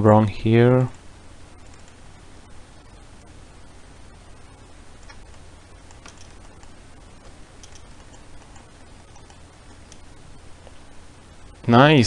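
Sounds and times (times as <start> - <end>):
background hiss: 0.0 - 12.0
low hum: 0.0 - 12.0
faint mouse clicks: 1.7 - 2.0, 5.0 - 10.8.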